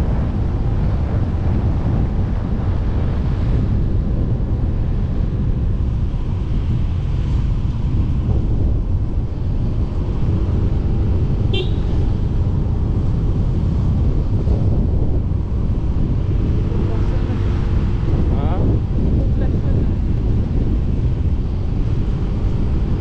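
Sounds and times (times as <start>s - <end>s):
wind rushing on microphone: 0.0s - 23.0s
horn beep: 11.5s - 12.0s.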